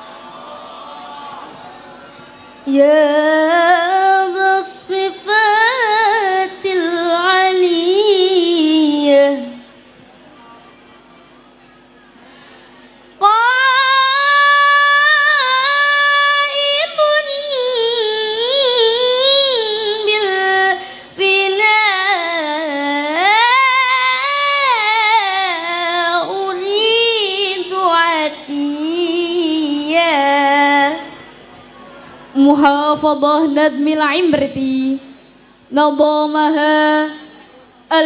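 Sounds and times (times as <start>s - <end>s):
woman singing ornamented chant: 2.6s - 9.7s, 13.2s - 31.5s, 32.4s - 38.0s.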